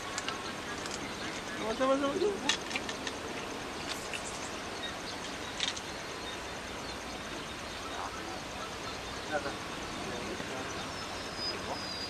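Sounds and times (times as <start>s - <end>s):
outdoor background noise: 0.0s - 12.0s
faint high chirping: 3.3s - 12.0s.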